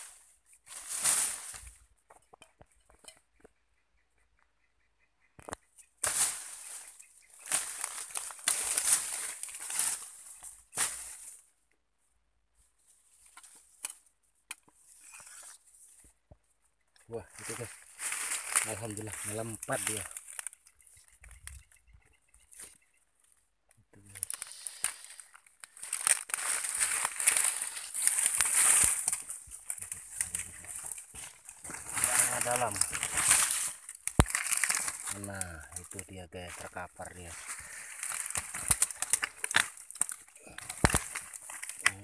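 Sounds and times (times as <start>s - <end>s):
undergrowth rustling and crackling: 0.0s - 2.8s, 5.6s - 11.6s, 17.0s - 42.0s
twigs snapping: 5.4s - 11.3s, 17.4s - 21.6s, 24.1s - 36.6s, 37.3s - 42.0s.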